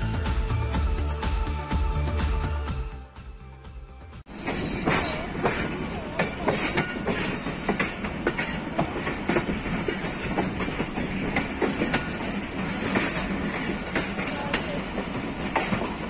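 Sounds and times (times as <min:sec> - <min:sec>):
wheel squeals: 0:04.3 - 0:05.8, 0:06.4 - 0:11.0
train rumble: 0:04.3 - 0:16.0
train wheels clattering over joints: 0:04.4 - 0:16.0.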